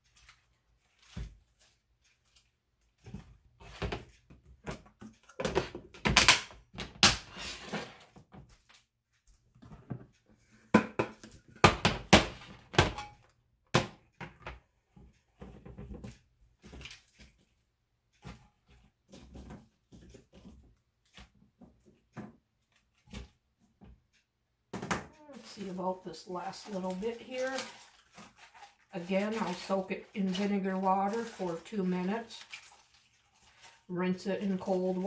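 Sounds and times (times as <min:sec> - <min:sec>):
lettuce leaves rustling: 0:25.3 - 0:35.0.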